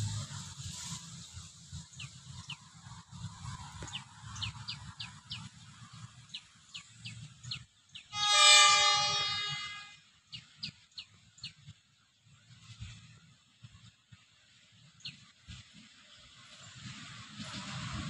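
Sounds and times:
low rumble: 0.0s - 1.0s
train horn blast: 8.1s - 10.1s.

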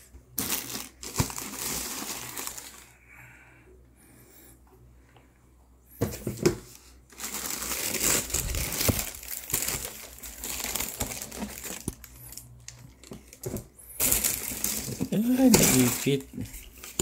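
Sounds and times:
tissue paper and plastic rustling: 0.4s - 2.9s, 6.6s - 17.0s.

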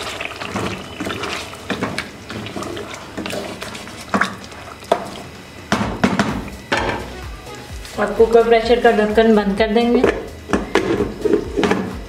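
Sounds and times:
wooden spatula stirring gravy: 0.0s - 5.4s.

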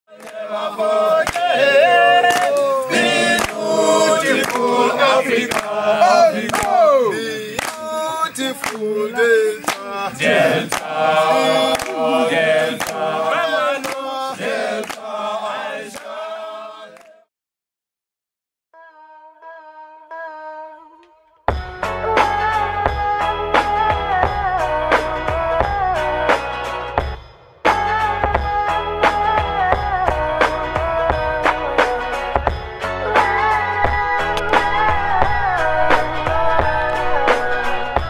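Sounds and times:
choral singing over percussion: 0.1s - 17.3s, 27.7s - 38.0s.

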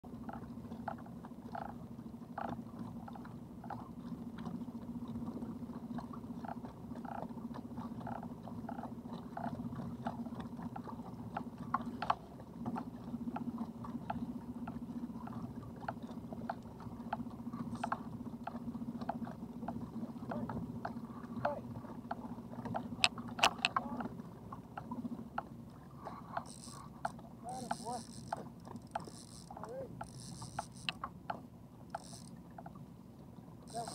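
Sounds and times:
water slapping hull: 0.0s - 33.9s
fishing reel clicking: 17.6s - 18.0s, 23.0s - 23.8s, 26.4s - 31.1s, 31.9s - 32.4s, 33.7s - 33.9s
electric motor humming: 26.4s - 31.0s, 33.7s - 33.9s.

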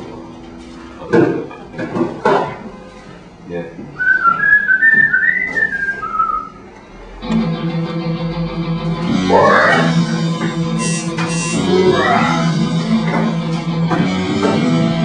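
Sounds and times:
person whistling a tune: 4.0s - 6.6s
music with guitar: 7.0s - 15.0s.

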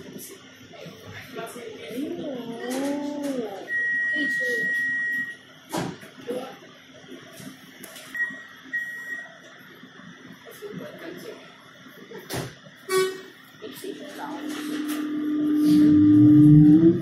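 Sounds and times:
train door warning beeps: 3.6s - 5.4s, 8.2s - 9.3s.

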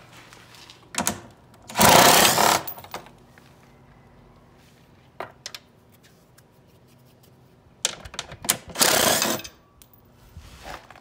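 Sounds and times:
power ratchet running: 1.7s - 2.7s, 8.7s - 9.5s
power ratchet clicks: 1.7s - 2.9s, 8.5s - 9.6s.

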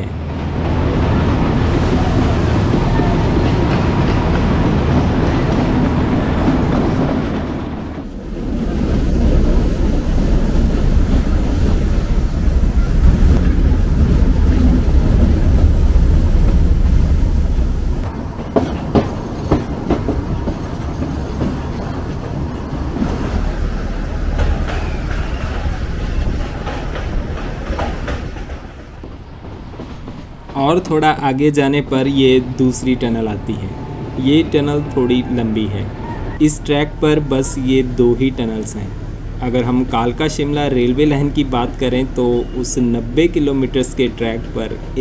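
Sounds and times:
train wheels rumbling: 0.0s - 45.0s
wheels clicking over rail joints: 18.0s - 33.0s.

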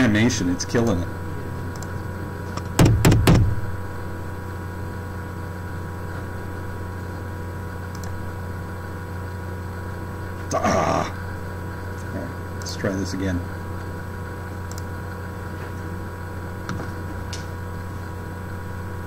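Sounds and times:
steady multi-tone hum: 0.0s - 19.0s
sharp knocks: 2.6s - 3.7s.

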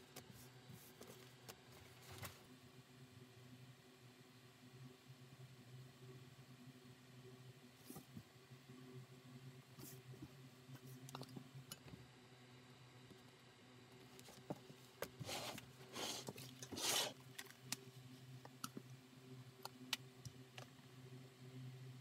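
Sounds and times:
low electrical hum: 0.0s - 22.0s
brushing scrapes: 15.2s - 17.2s.

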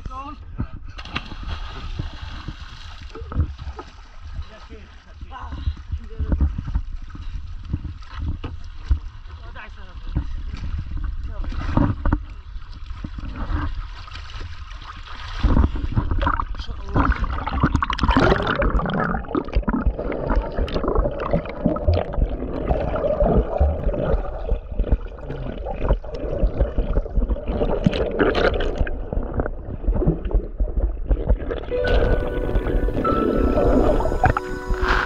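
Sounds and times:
small knocks underwater: 1.0s - 4.4s, 5.6s - 9.2s, 10.0s - 14.5s
sea water sloshing and gurgling: 1.0s - 35.0s
bubbling underwater rush: 16.2s - 35.0s.

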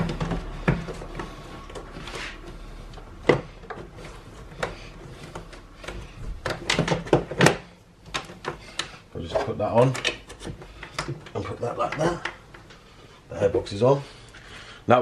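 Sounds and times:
plastic parts clicking and knocking: 0.0s - 12.8s.

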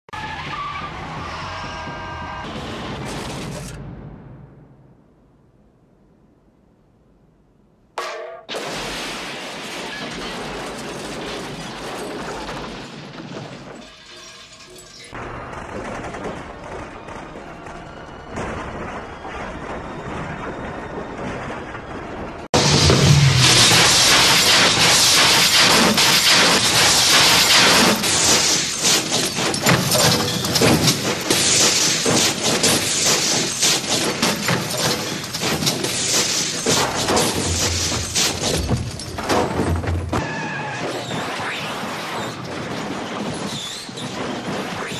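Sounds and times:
crunching impacts: 8.4s - 40.3s
glass breaking: 8.5s - 15.2s, 22.6s - 40.2s
car crash: 8.5s - 44.9s
crash and skid noise: 8.5s - 44.9s.

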